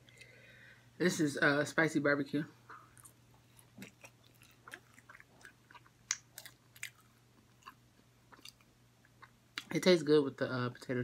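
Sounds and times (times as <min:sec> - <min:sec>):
person chewing food: 0:02.7 - 0:09.7
mouth clicks and crunches: 0:02.9 - 0:09.8.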